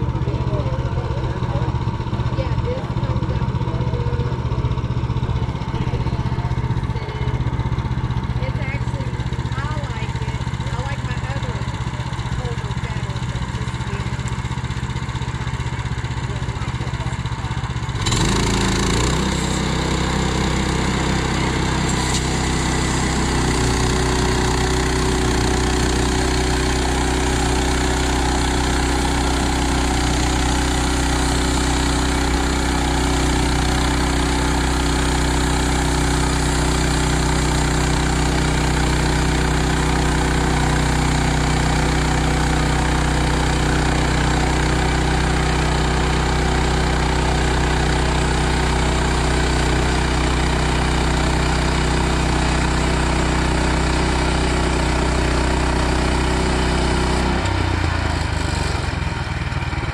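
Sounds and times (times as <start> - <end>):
gas engine running: 0.0 - 59.9
band blade sawing log: 18.1 - 34.4.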